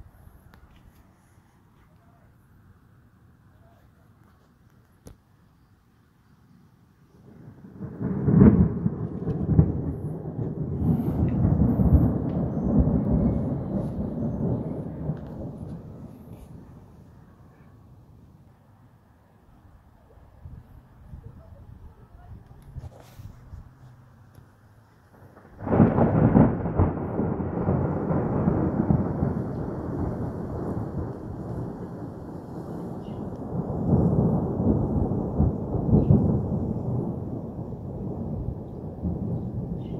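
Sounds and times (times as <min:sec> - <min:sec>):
thunder clap: 0:07.2 - 0:17.1, 0:25.1 - 0:39.9
deep thunder rumble: 0:07.2 - 0:18.5, 0:25.1 - 0:39.9.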